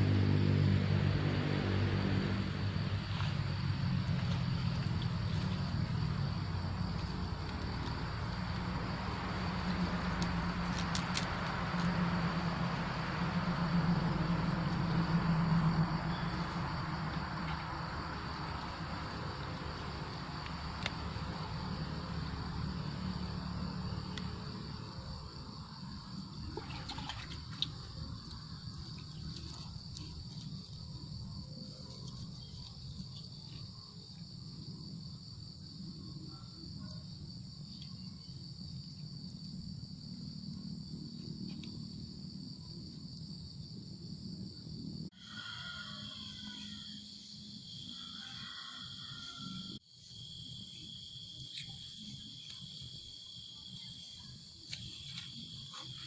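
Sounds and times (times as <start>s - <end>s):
crickets chirring: 0.0s - 56.0s
leaves clicking: 4.0s - 13.4s, 18.4s - 21.7s, 26.9s - 30.9s.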